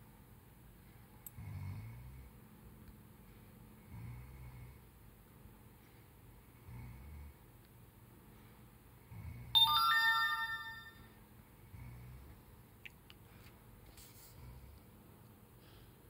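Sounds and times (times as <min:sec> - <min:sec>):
bright ringing chime: 0:09.6 - 0:11.2.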